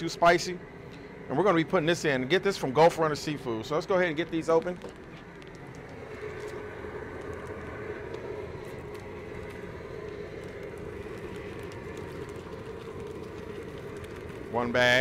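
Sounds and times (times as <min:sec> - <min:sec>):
burner low hum: 0:00.0 - 0:15.0
water boiling in large pot: 0:00.0 - 0:15.0.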